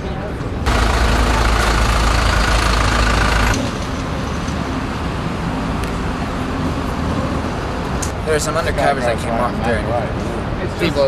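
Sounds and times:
city traffic noise: 0:00.0 - 0:11.0
large engine idling: 0:00.6 - 0:04.3.

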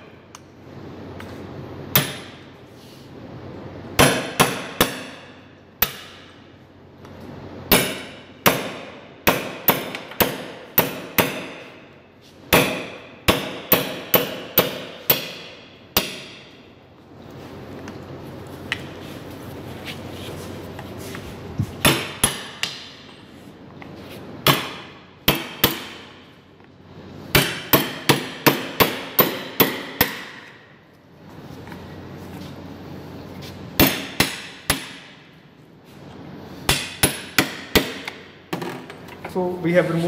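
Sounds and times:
hammer striking chisel: 0:01.9 - 0:02.4, 0:04.0 - 0:06.4, 0:07.7 - 0:11.9, 0:12.5 - 0:16.6, 0:21.8 - 0:23.2, 0:24.4 - 0:26.3, 0:27.3 - 0:30.7, 0:33.8 - 0:35.3, 0:36.7 - 0:38.7.

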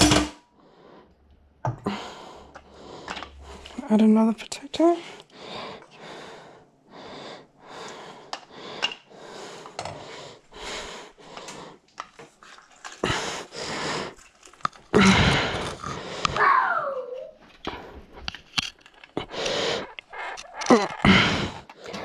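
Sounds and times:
wheezy breathing: 0:05.0 - 0:11.9, 0:12.9 - 0:16.4, 0:19.1 - 0:22.0.

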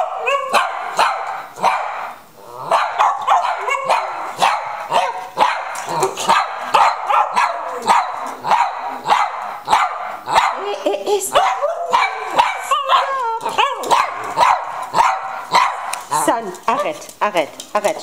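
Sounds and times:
dog barking: 0:00.0 - 0:10.7, 0:11.3 - 0:15.9.

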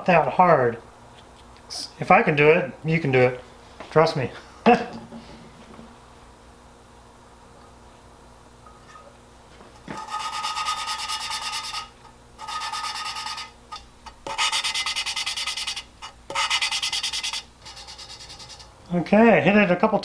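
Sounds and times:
valve lapping gritty rasping: 0:09.8 - 0:18.7.

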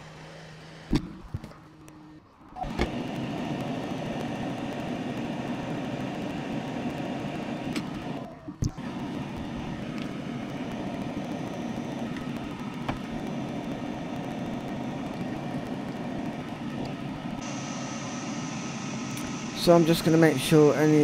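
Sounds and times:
blower fan whooshing: 0:02.6 - 0:21.0
high hiss: 0:17.4 - 0:21.0.

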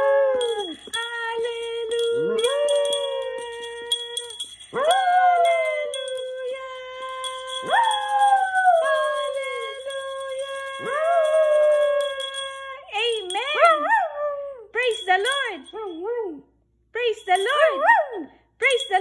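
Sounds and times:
dog howling: 0:00.0 - 0:00.9, 0:02.0 - 0:09.8, 0:10.6 - 0:12.6.

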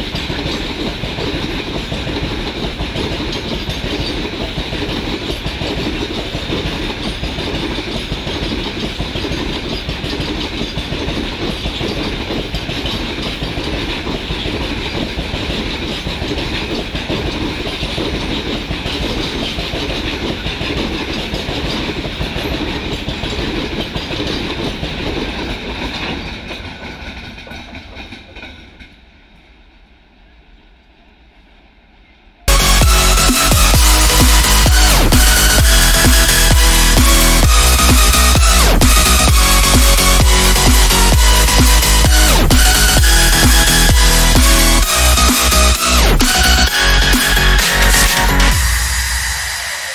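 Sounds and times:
freight wagon wheels clacking on rails: 0:00.0 - 0:29.7, 0:32.5 - 0:49.9
loud music: 0:32.5 - 0:49.9.

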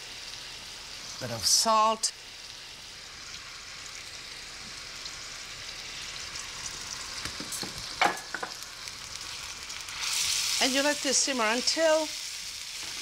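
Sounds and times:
meat sizzling in a skillet: 0:00.0 - 0:13.0.

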